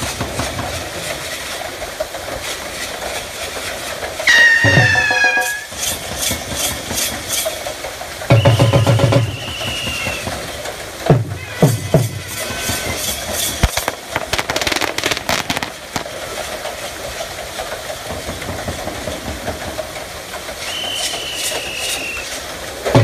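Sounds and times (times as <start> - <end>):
wooden water wheel clattering: 0.0 - 23.0
short whistle: 4.3 - 5.7, 8.3 - 10.4, 20.6 - 22.4
sharp clacks: 12.4 - 23.0.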